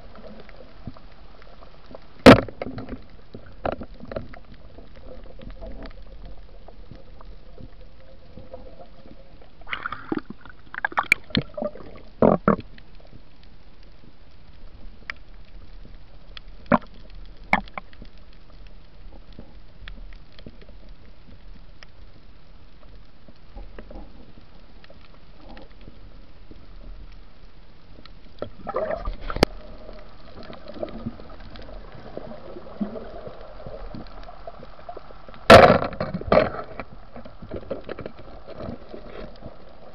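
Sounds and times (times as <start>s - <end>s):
muffled underwater water rush: 0.0s - 39.9s.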